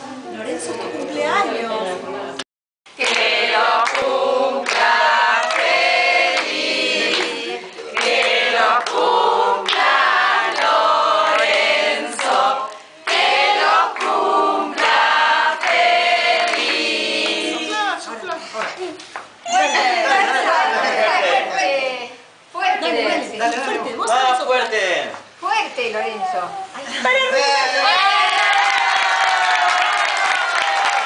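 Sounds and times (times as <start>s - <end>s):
people singing a birthday song: 0.0s - 24.3s.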